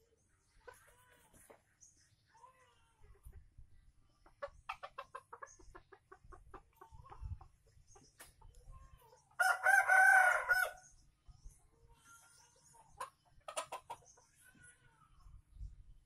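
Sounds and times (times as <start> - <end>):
rooster clucking: 4.2 - 7.6, 12.9 - 14.3
rooster crowing: 9.4 - 10.8.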